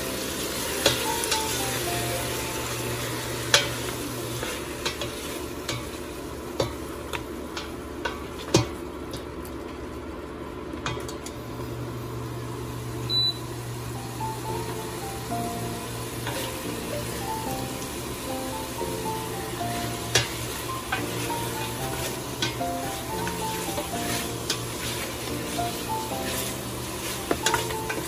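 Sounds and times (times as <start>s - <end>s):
food sizzling in oil: 0.0s - 8.6s, 11.4s - 28.0s.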